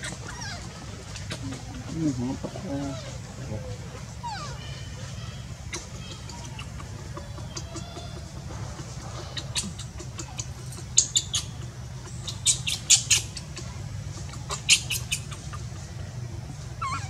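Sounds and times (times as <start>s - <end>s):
baby monkey squeaking: 0.0s - 1.7s, 4.2s - 4.8s, 5.7s - 15.7s, 16.8s - 17.0s
steady low hum: 0.0s - 17.0s.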